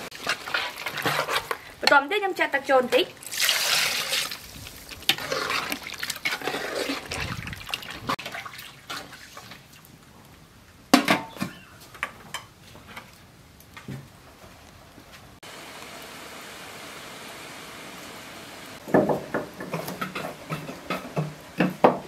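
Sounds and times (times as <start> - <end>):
water splashing into a pot: 3.2 - 9.8.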